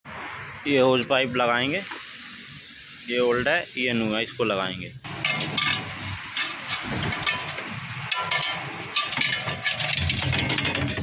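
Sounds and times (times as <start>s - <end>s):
metal pipe clinking: 5.1s - 11.0s.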